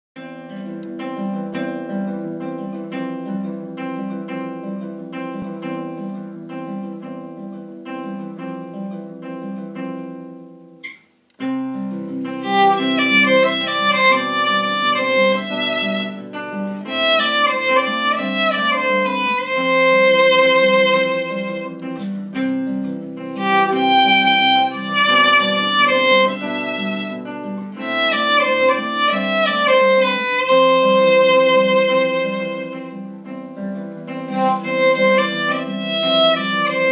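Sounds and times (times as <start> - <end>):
plucked string accompaniment: 0.2 - 36.9
bowed violin melody: 12.3 - 22.0, 23.3 - 33.1, 34.2 - 36.9.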